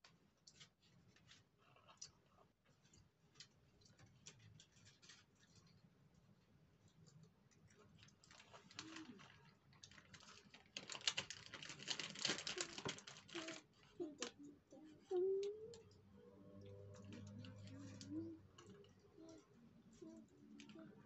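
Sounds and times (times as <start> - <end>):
plastic wrapper crinkling: 7.9 - 14.5
toddler vocal sound: 12.5 - 16.0.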